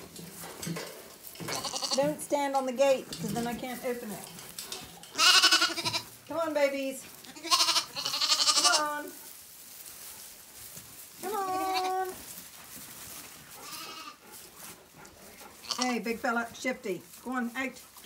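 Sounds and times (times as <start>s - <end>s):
lambs bleating: 1.4s - 2.1s, 5.1s - 6.2s, 7.2s - 9.2s, 11.3s - 12.2s, 13.6s - 14.2s, 15.6s - 16.0s.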